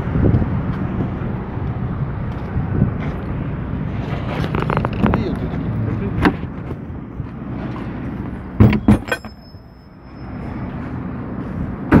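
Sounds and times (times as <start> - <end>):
sharp metallic knocks: 8.6 - 9.7.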